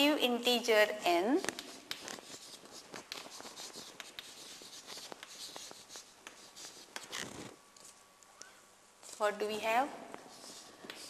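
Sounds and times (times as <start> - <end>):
chalk tapping and scratching: 1.1 - 8.0, 9.0 - 11.0.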